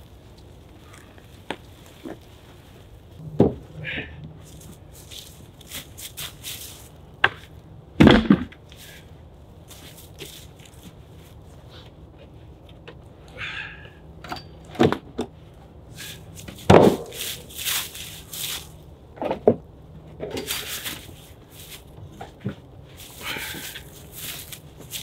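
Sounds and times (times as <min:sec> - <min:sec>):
logs thudding on wooden cart: 0:03.2 - 0:04.1, 0:07.2 - 0:08.6, 0:16.5 - 0:17.3
footsteps crunching in snow: 0:04.4 - 0:07.5, 0:09.6 - 0:11.6, 0:16.0 - 0:18.9, 0:20.4 - 0:22.3, 0:22.9 - 0:25.0.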